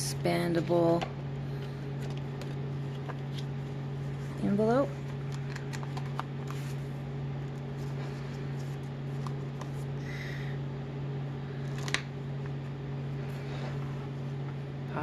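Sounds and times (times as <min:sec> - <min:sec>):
steady low hum: 0:00.0 - 0:15.0
paper pages rustling: 0:02.0 - 0:09.9.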